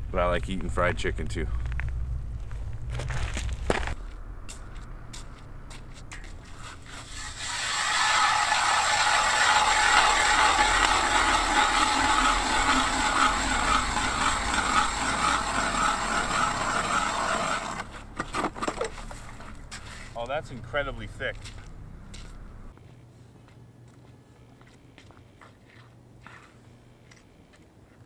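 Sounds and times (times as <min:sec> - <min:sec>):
ice auger grinding into ice: 0:06.9 - 0:18.5.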